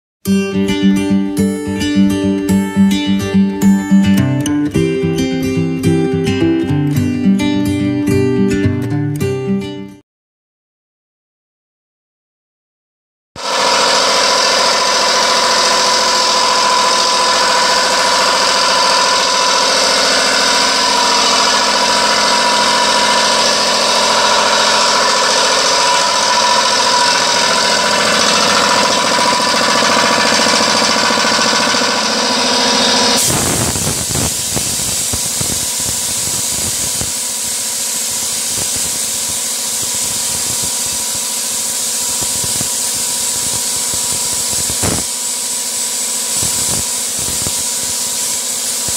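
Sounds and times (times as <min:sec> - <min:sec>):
air compressor running: 0:00.3 - 0:04.1, 0:13.4 - 0:48.9
sandblaster hissing blast: 0:13.4 - 0:48.9.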